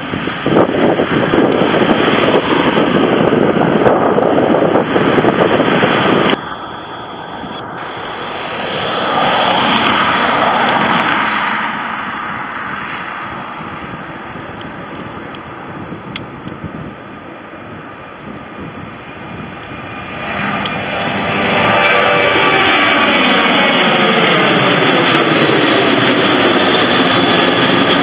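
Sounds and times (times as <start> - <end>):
jet engine roar: 0.0 - 28.0
wind on microphone: 0.0 - 28.0
vehicle passing on road: 0.9 - 15.9.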